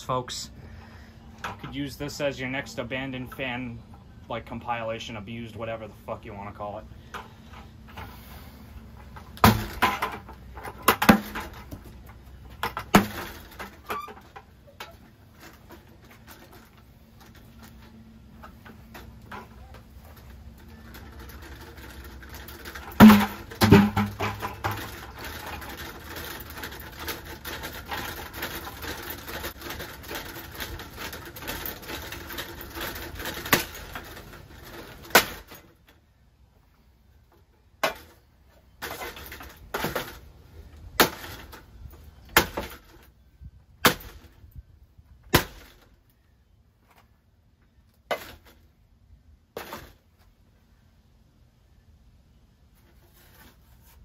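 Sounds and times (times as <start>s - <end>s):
ceiling fan rattling: 6.4s - 35.9s.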